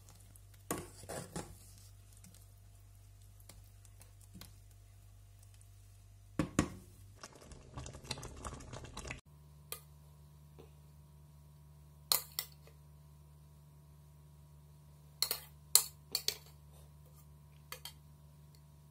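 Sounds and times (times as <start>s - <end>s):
wooden spoon stirring thick mix: 0.0s - 6.0s.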